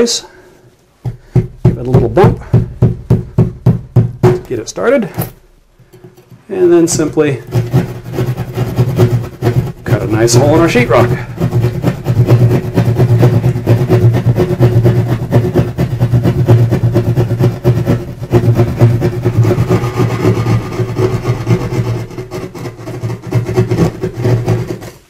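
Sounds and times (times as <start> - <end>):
jab saw sawing through drywall: 6.6 - 25.0.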